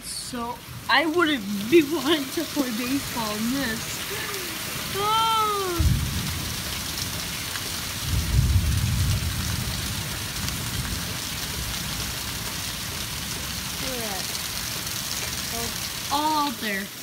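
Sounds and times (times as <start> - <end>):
steady rain falling: 0.0 - 17.0
thunder rumbling: 0.0 - 17.0.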